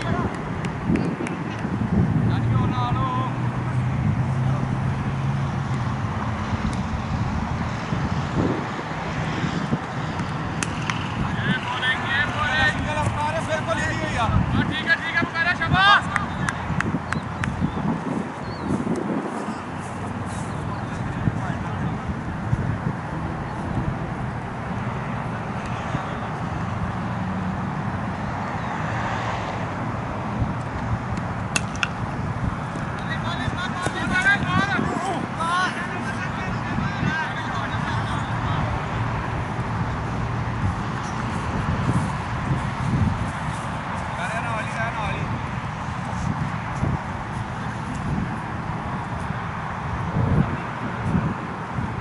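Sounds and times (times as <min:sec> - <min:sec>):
distant traffic rumble: 0:00.0 - 0:52.0
wind buffeting microphone: 0:00.0 - 0:52.0
bat striking cricket ball: 0:31.5 - 0:32.0.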